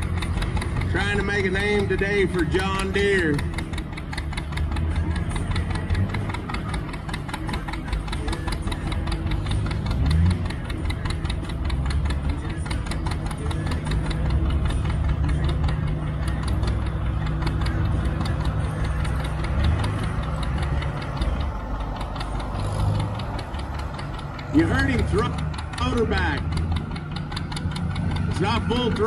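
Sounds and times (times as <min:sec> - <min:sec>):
tractor engine popping under load: 0:00.0 - 0:29.0.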